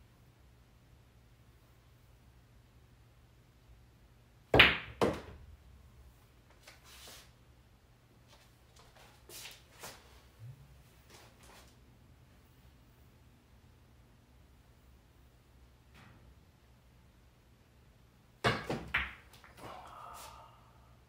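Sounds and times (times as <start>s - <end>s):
billiard balls clacking: 18.5s - 19.6s.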